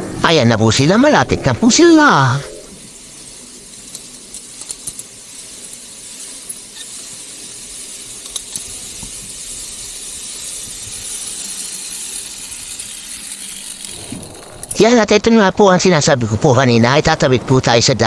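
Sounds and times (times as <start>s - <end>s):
zipline pulleys hissing on cable: 0.0s - 16.1s.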